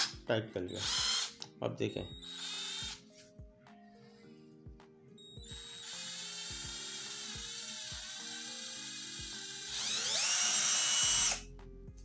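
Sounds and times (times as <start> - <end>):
cordless drill motor whining: 0.0 - 3.1, 5.2 - 11.5.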